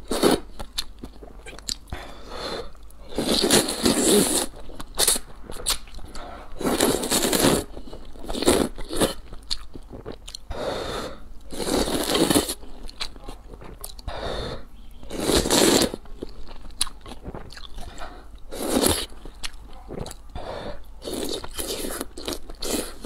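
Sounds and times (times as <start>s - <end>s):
wet chewing: 0.1s - 10.6s, 11.4s - 14.2s, 15.1s - 23.0s
person slurping noodles: 2.1s - 7.7s, 9.9s - 12.6s, 14.1s - 16.0s, 17.2s - 19.1s, 19.9s - 23.0s.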